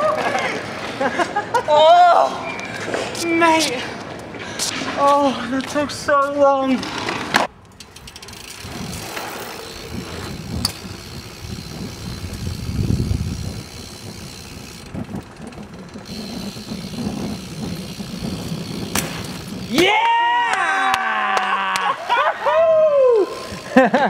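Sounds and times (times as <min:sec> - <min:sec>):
bike tyre rumble on paving: 0:00.0 - 0:24.0
freewheel clicking: 0:07.6 - 0:20.3, 0:23.2 - 0:24.0.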